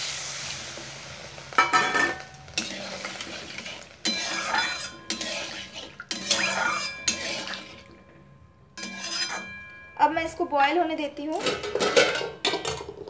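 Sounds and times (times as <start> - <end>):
metal spatula scraping a pan: 1.6 - 8.2, 8.8 - 10.0.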